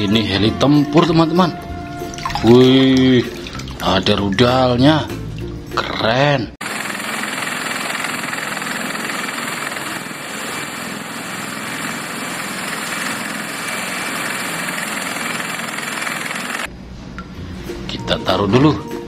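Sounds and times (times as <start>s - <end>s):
helicopter turbine and rotor noise: 6.6s - 16.7s.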